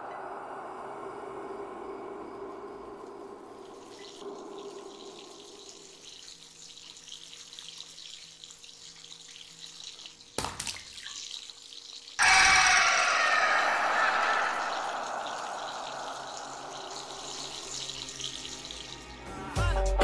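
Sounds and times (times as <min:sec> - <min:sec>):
tap water running and splashing: 0:03.6 - 0:12.2, 0:15.2 - 0:19.4
sudden loud burst: 0:12.2 - 0:17.9.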